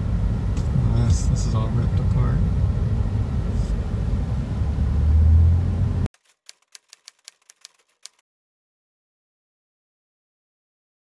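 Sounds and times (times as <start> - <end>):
car road and engine rumble: 0.0 - 6.1
typewriter key clicks: 6.2 - 8.2.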